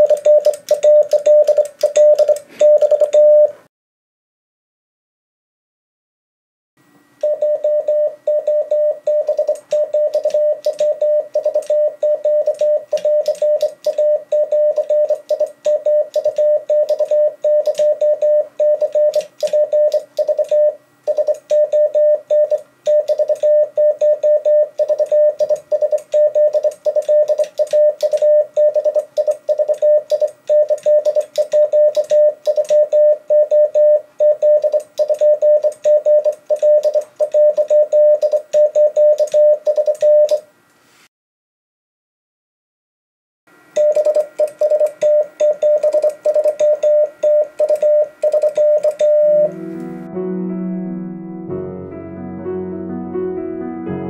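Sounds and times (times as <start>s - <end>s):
morse code sidetone beeps: 0.0s - 3.6s, 7.2s - 40.4s, 43.8s - 49.6s
telegraph key clicking: 24.9s - 28.3s.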